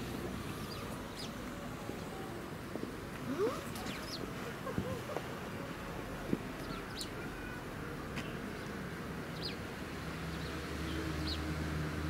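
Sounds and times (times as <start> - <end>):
small birds chirping: 0.4 - 2.1, 3.4 - 4.3, 6.6 - 7.2, 8.6 - 9.7, 10.3 - 11.5.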